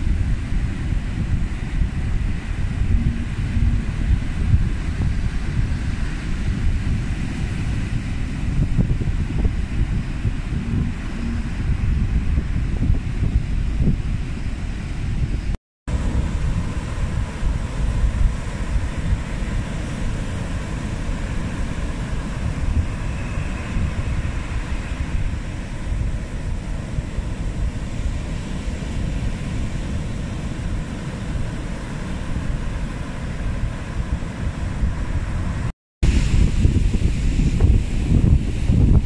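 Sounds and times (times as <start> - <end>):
wind buffeting microphone: 0.0 - 39.0
surf breaking on beach: 15.9 - 39.0.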